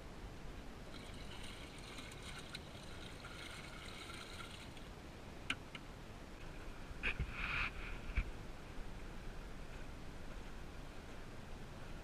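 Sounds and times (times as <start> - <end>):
water pouring from bucket: 0.9 - 4.9.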